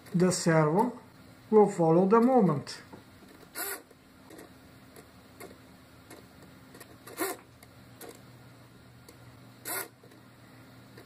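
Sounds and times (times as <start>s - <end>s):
small servo motor whirring: 3.5s - 4.5s, 7.0s - 7.4s, 9.6s - 10.0s.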